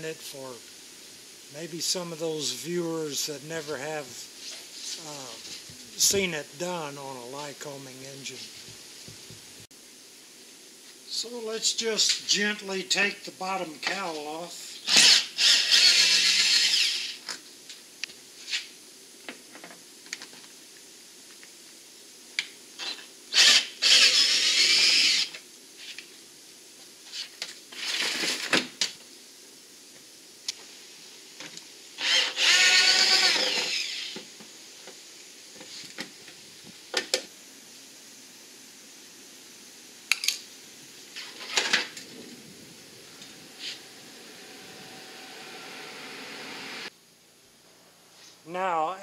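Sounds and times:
cordless drill whirring: 14.8 - 17.2, 22.8 - 25.4, 32.0 - 34.2.

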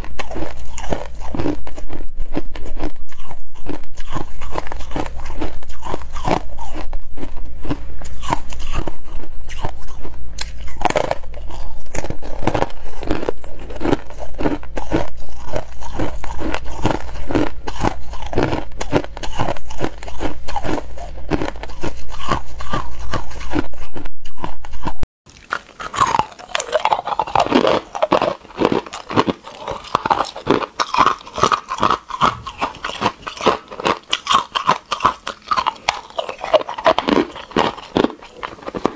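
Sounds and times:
chewing and crunching ice: 0.0 - 38.9.

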